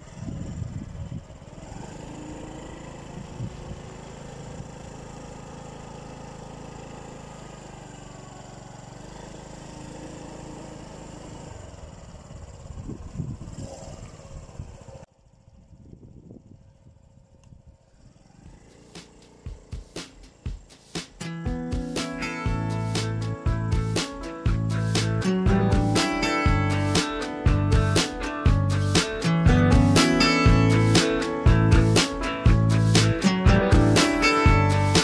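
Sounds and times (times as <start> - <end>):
small engine humming: 0.0 - 35.0
low rumbles: 11.5 - 21.9, 22.5 - 34.9.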